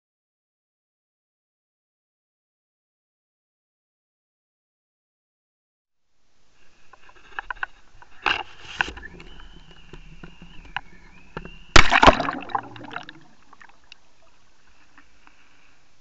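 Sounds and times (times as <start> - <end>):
loud splash into water: 11.8 - 13.4.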